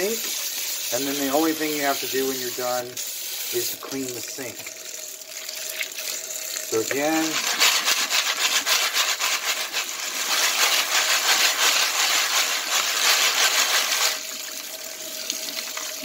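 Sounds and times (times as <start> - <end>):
tap water running: 0.0 - 16.0
bullets jostling in a colander: 6.9 - 14.2.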